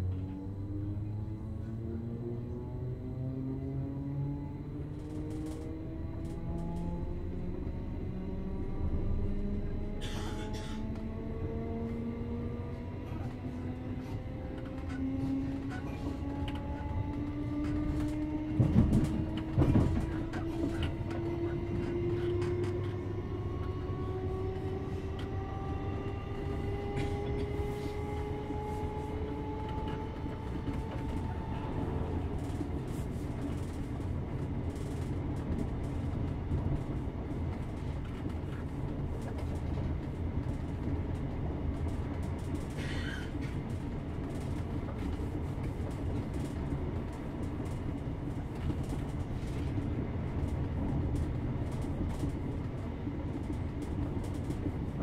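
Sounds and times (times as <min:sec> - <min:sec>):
train running rumble: 0:00.0 - 0:55.0
traction motor whine: 0:00.1 - 0:19.0.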